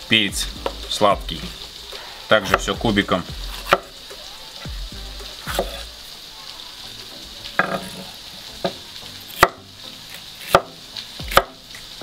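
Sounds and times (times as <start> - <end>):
vegetables sizzling in oil: 0.0 - 12.0
knife chopping on wooden board: 3.4 - 3.9, 5.4 - 5.8, 10.4 - 10.7, 11.3 - 11.6.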